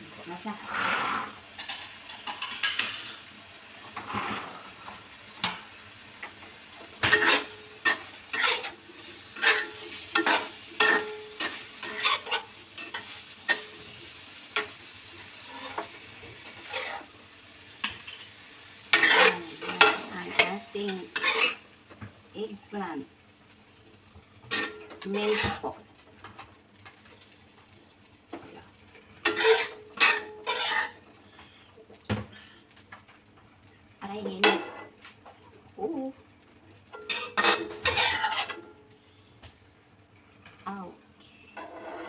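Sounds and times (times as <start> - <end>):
faint sizzle: 0.0 - 42.0
metal spatula scraping a wok: 0.4 - 3.3, 3.9 - 5.6, 6.9 - 17.1, 17.7 - 21.6, 24.4 - 25.8, 29.2 - 31.1, 34.4 - 35.0, 36.9 - 39.2, 41.5 - 42.0.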